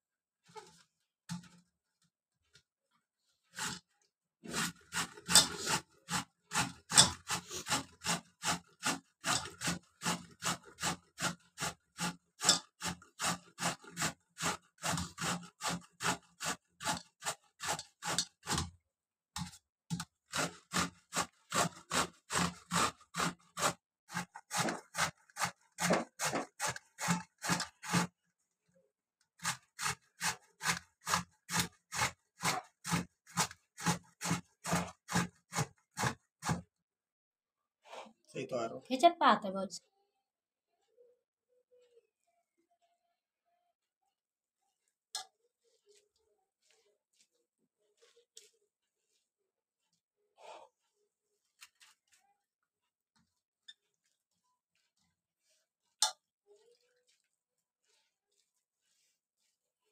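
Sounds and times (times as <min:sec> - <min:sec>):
gourd scraping on metal grater: 0:04.4 - 0:18.7, 0:20.3 - 0:28.1, 0:29.4 - 0:36.6.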